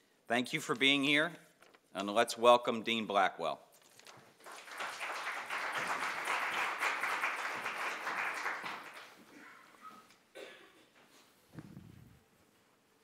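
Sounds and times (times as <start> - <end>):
audience applauding: 4.4 - 9.7.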